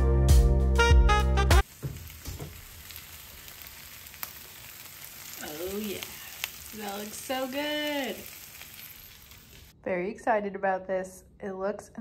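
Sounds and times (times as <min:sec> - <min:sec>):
hot pan sizzling: 0:01.6 - 0:09.8.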